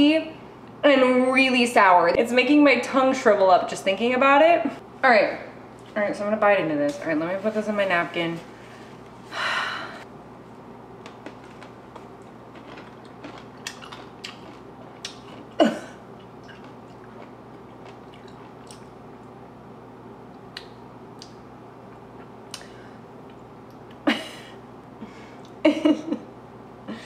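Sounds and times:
faint steady hum: 0.0 - 27.0
pickle crunching while chewing: 11.1 - 15.6, 16.2 - 19.0.

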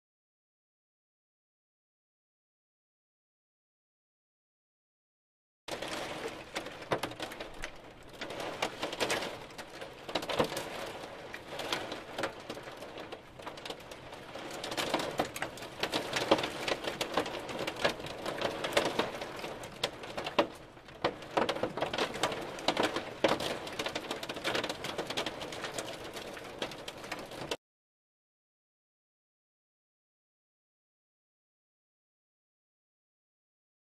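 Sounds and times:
hailstones clattering: 5.7 - 27.6.

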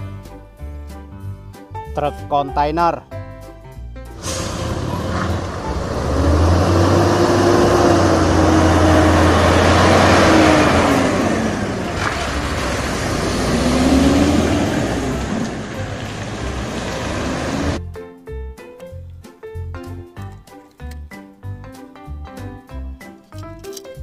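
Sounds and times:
truck diesel engine running: 4.2 - 17.8.

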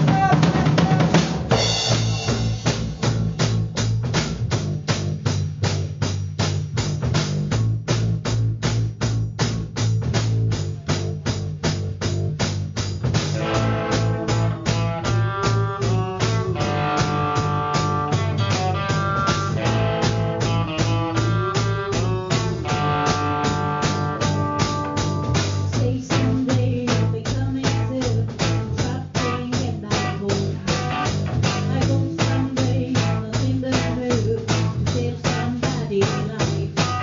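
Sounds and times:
blues-rock band playing: 0.0 - 3.6, 13.2 - 37.0
woman singing: 25.7 - 37.0.

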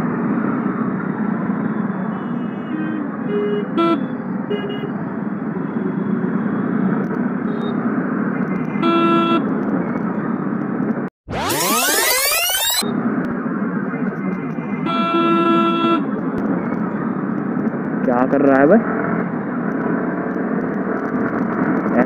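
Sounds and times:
dense city traffic: 0.0 - 11.1, 12.8 - 22.0
rising swept music effect: 11.3 - 12.8
vehicle horns tooting: 14.8 - 16.1.

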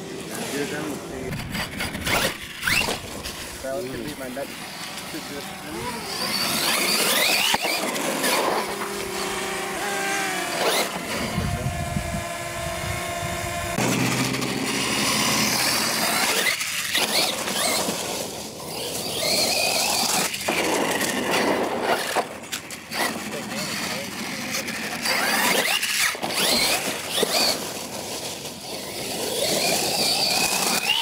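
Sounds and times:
electric motor whine: 0.6 - 18.0, 28.6 - 31.0.

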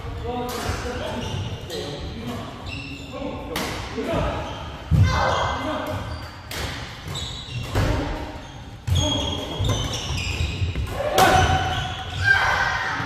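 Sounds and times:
shoes squeaking on wooden floor: 4.3 - 12.4.

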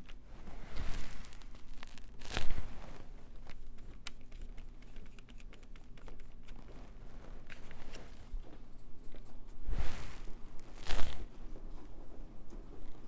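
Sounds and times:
paper crinkling and rustling: 0.0 - 8.6.

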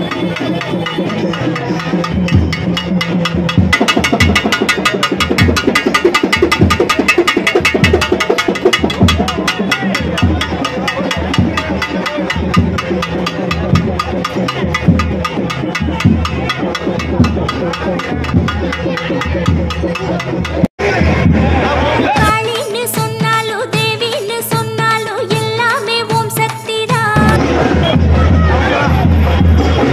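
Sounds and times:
crowd voices: 0.0 - 29.9
festival drums fast beat: 0.0 - 29.9.

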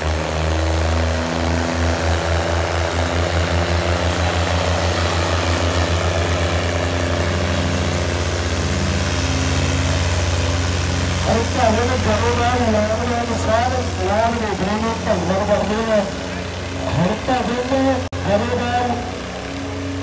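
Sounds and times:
tractor diesel engine revving: 0.0 - 20.0.

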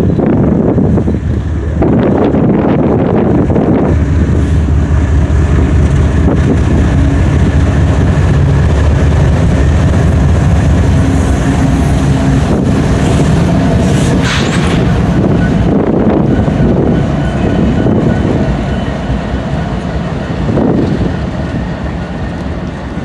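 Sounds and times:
diesel locomotives rumbling past: 0.0 - 23.0.

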